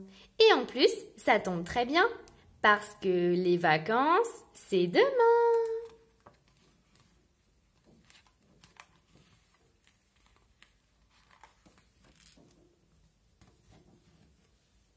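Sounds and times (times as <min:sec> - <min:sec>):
book pages turning: 0:05.6 - 0:14.9.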